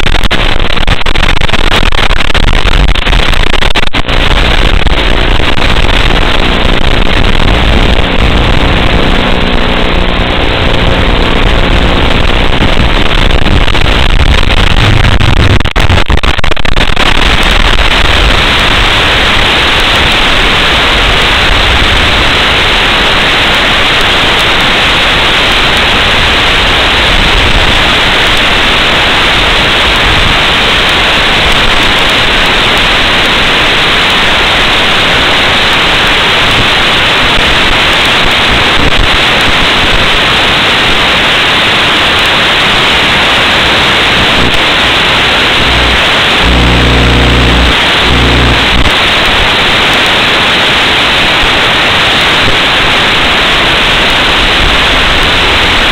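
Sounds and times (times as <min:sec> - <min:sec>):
low stuttering buzz: 0:00.0 - 0:23.3, 0:42.3 - 0:49.8
loud static hiss: 0:00.0 - 0:55.9.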